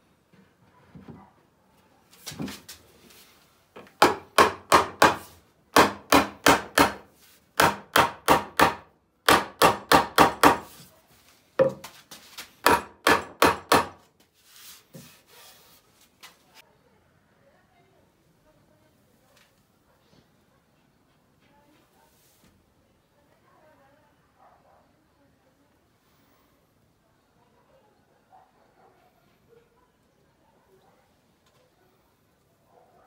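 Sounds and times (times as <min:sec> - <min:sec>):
mallet knocking wood: 0:04.0 - 0:05.2, 0:05.8 - 0:07.0, 0:07.6 - 0:10.7, 0:12.6 - 0:14.0.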